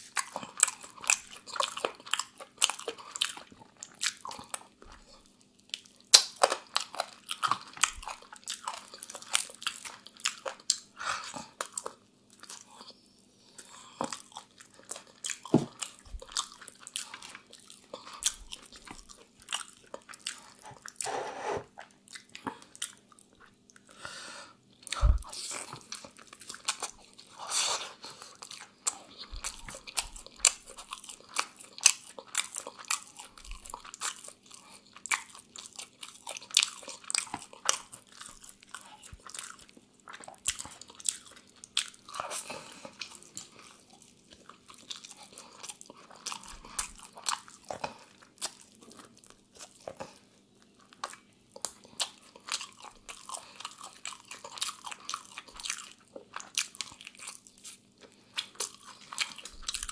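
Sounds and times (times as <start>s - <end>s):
chewing crunches: 0.0s - 24.0s, 24.8s - 59.9s.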